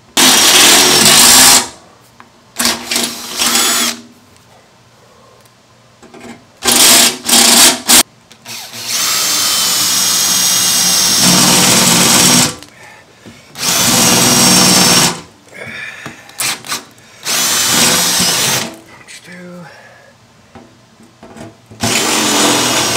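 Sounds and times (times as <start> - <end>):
cordless drill driving fasteners: 0.2 - 1.7, 2.6 - 4.0, 6.6 - 12.6, 13.6 - 15.2, 16.4 - 18.8, 21.8 - 22.9.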